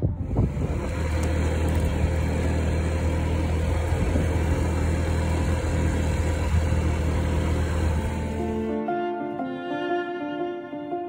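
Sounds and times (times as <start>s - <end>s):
road and air noise hiss: 0.0s - 8.8s
scooter engine humming: 0.0s - 8.9s.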